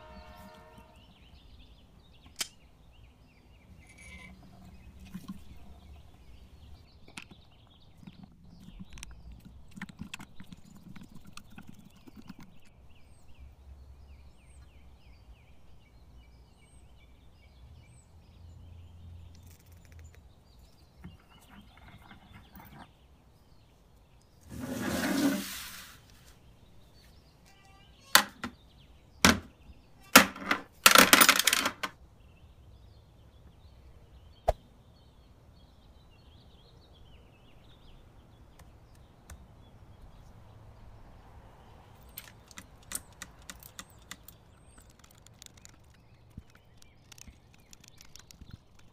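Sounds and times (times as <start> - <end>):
metal parts clattering: 3.8 - 4.4, 30.1 - 31.9
metal rubbing rattle: 3.8 - 5.9.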